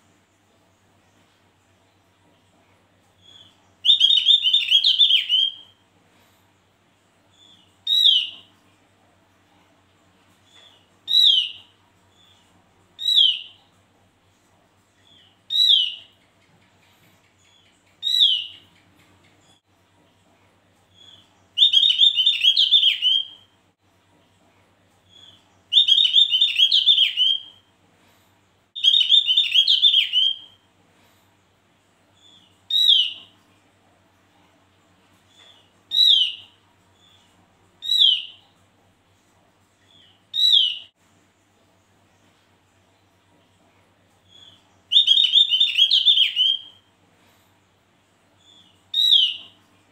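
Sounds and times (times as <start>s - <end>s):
bird whistling downward notes: 3.3s - 5.6s, 21.6s - 23.4s, 25.2s - 27.6s, 28.8s - 30.5s, 40.4s - 40.9s, 44.3s - 46.8s.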